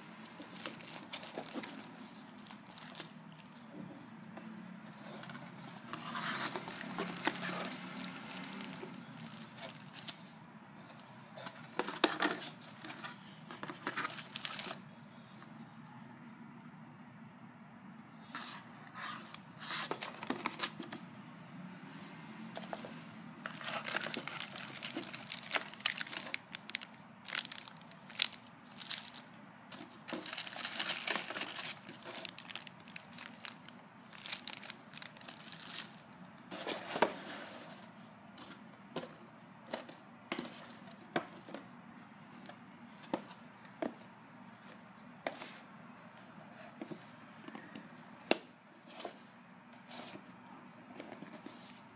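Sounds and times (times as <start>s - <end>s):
plastic bags crinkling: 0.4s - 3.6s, 6.2s - 10.2s, 13.8s - 14.8s, 23.5s - 36.1s.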